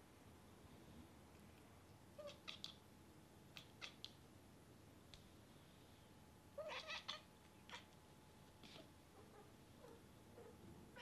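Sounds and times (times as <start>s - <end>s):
cat chirping: 2.2s - 2.8s, 3.5s - 4.2s, 6.6s - 8.0s.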